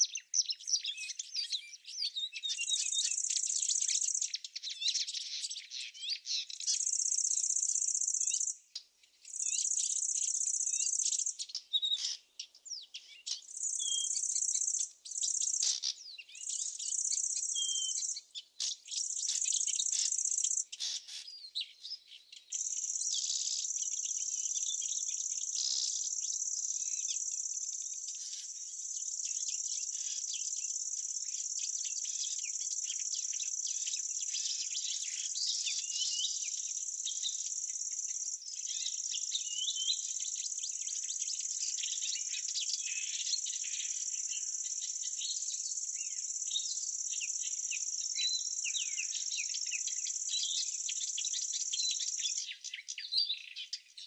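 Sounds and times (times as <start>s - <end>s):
small birds chirping: 0.0s - 54.0s
high-pitched insect trilling: 18.9s - 20.6s, 22.6s - 39.3s.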